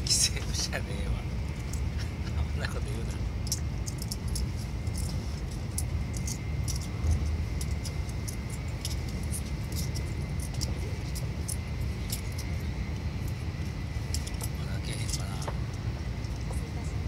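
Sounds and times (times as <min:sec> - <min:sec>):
faint high whine: 0:00.0 - 0:17.0
train carriage low rumble: 0:00.0 - 0:17.0
small clicks and ticks: 0:03.4 - 0:16.6.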